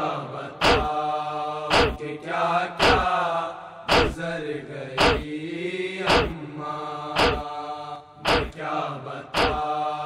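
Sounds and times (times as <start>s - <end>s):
voices chanting a lament: 0.0s - 10.0s
sharp rhythmic beat: 0.6s - 1.0s, 1.7s - 2.0s, 2.8s - 3.2s, 3.9s - 4.3s, 5.0s - 5.3s, 6.1s - 6.4s, 7.2s - 7.5s, 8.2s - 8.6s, 9.4s - 9.7s.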